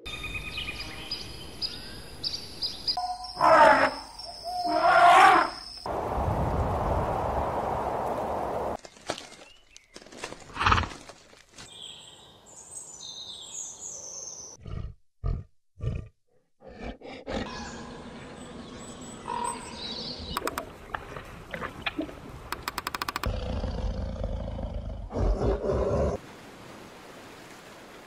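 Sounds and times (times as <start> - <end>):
large animal roaring and growling: 23.3 - 26.2.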